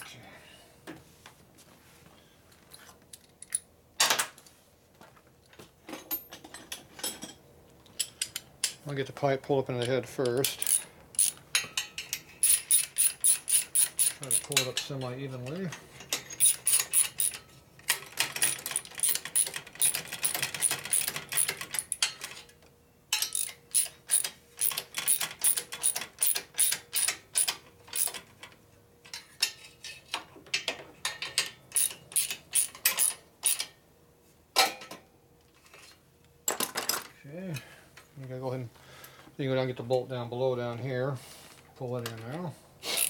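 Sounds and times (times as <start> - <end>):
hand ratchet clicking: 10.5 - 11.4, 12.4 - 14.8, 16.3 - 17.4, 18.2 - 22.1, 23.3 - 28.2, 31.8 - 33.6.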